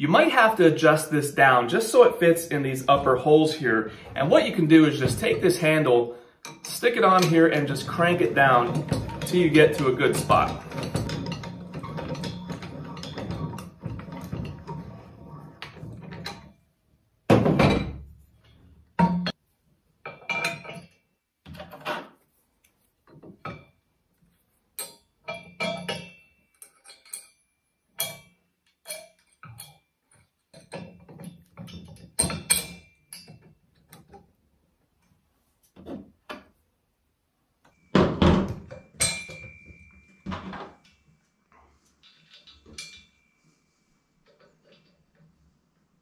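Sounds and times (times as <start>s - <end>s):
handle turning threaded rod: 6.4s - 16.5s
metal knocks and ringing clinks: 6.4s - 16.6s, 20.0s - 22.0s, 24.8s - 34.2s, 37.7s - 41.1s, 42.0s - 43.6s.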